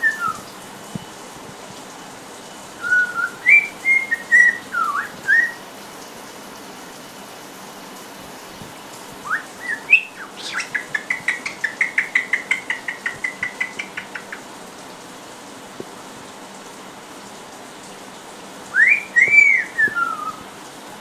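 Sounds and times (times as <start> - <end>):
parrot whistling: 0.0 - 0.5, 2.8 - 5.6, 9.2 - 14.4, 18.8 - 20.4.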